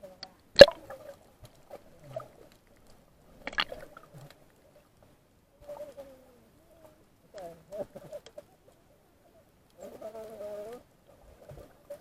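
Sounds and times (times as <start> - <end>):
sharp knocks underwater: 0.6 - 1.0, 3.4 - 4.0.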